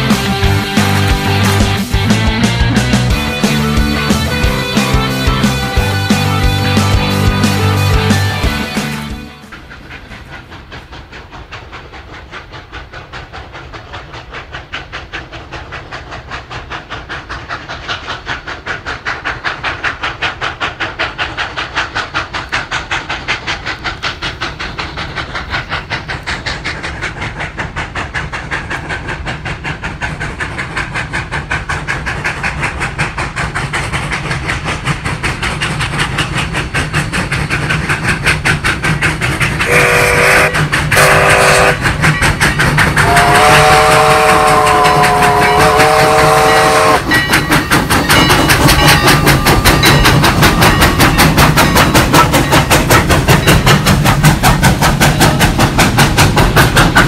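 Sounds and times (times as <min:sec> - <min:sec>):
steam locomotive exhaust beat: 0:00.0 - 0:57.0
steam whistle: 0:39.7 - 0:41.8, 0:43.0 - 0:47.1.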